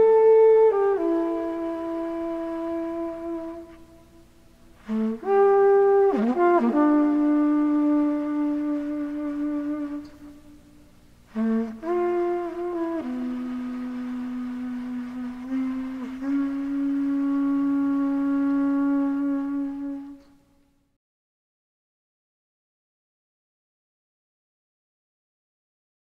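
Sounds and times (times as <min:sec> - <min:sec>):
trumpet playing held notes: 0:00.0 - 0:10.7, 0:11.3 - 0:20.3.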